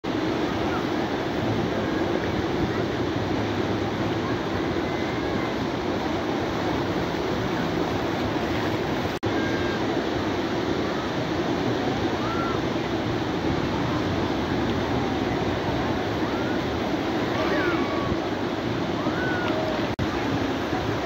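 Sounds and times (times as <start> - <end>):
surf rushing: 0.0 - 21.0
crowd chatter: 10.6 - 21.0.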